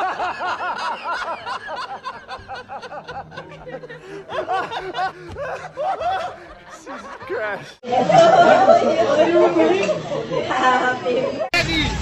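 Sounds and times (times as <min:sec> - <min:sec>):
man laughing heartily: 0:00.0 - 0:07.8.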